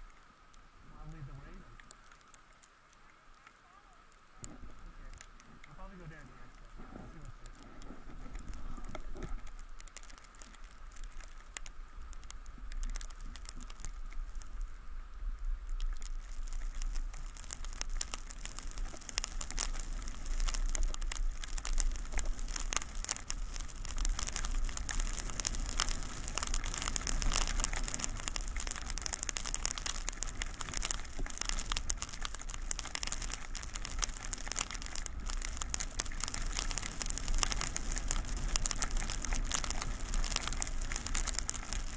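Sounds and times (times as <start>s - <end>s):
wind rumble on microphone: 6.3s - 11.1s, 12.0s - 41.9s
skis scraping over snow: 16.2s - 41.9s.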